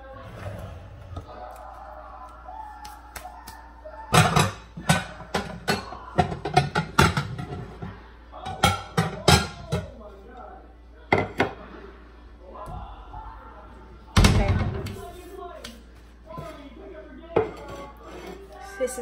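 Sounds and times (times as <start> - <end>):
faint tv music: 0.0 - 19.0
faint tv talk: 0.0 - 19.0
objects knocking and clattering: 4.1 - 9.9.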